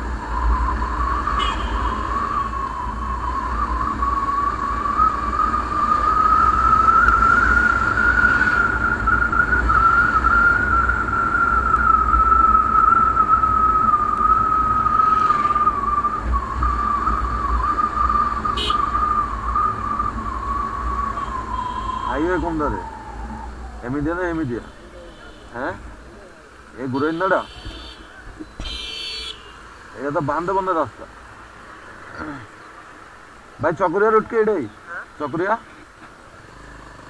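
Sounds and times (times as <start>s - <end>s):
wind rumble: 0.0s - 24.8s
motorcycle engine whine: 0.0s - 29.1s.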